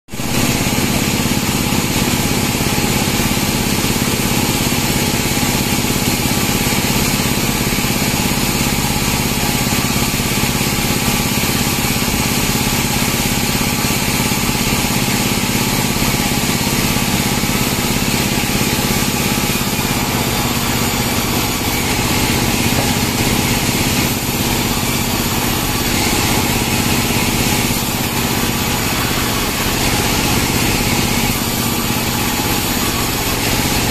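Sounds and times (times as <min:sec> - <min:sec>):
band sawmill droning: 0:00.2 - 0:33.9.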